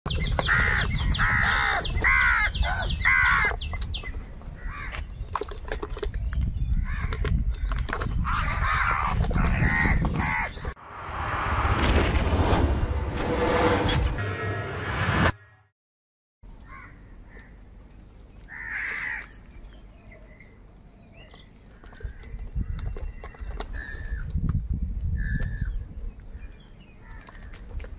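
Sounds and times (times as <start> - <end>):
crows cawing: 0.5 - 3.5, 8.2 - 10.6, 16.7 - 17.5, 18.5 - 19.4.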